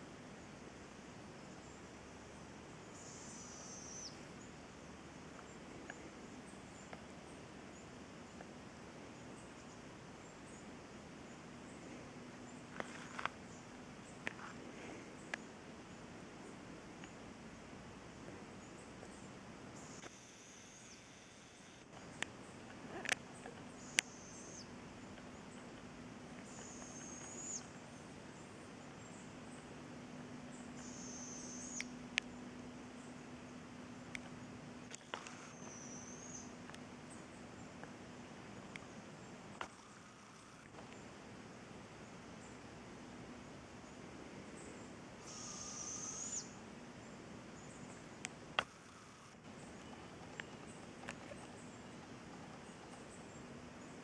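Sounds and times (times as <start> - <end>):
owl begging call: 45.2 - 46.6.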